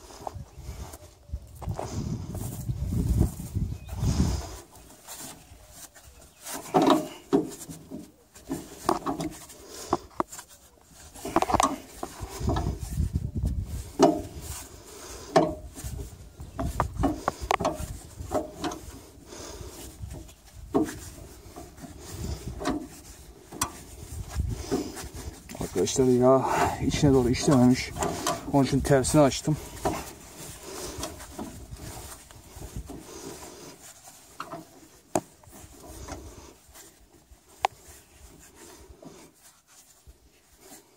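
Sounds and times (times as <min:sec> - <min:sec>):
metal clanks and scraping: 0:06.3 - 0:13.0, 0:13.7 - 0:19.1, 0:19.7 - 0:36.4.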